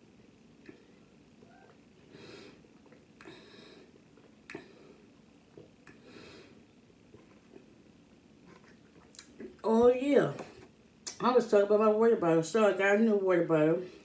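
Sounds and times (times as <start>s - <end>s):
swallowing clicks: 4.2s - 4.8s.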